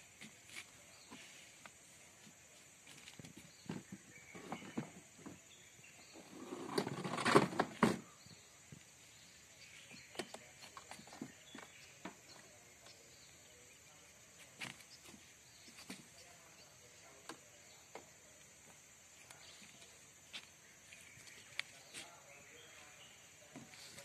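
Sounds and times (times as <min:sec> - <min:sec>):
plastic chair scraping on wood: 0:03.7 - 0:05.4, 0:06.1 - 0:08.1.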